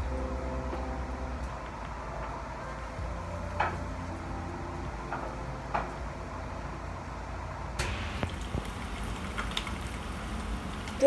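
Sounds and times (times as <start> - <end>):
gas stove hum: 0.0 - 11.0
egg sizzling in a pan: 7.8 - 11.0.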